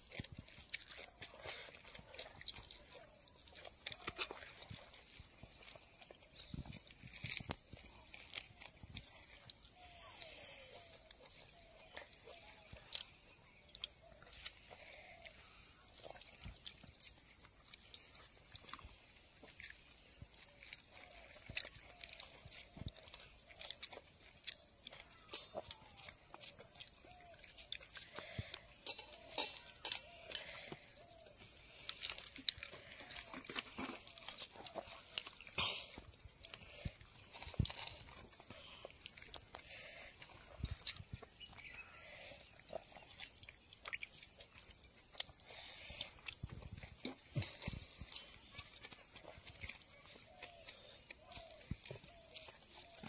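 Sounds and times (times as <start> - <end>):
chewing and lip smacks: 0.0 - 10.2, 10.8 - 53.0.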